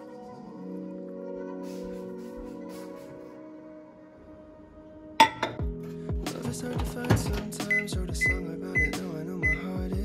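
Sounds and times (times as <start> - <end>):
music with bass-drum kicks: 5.6 - 10.0.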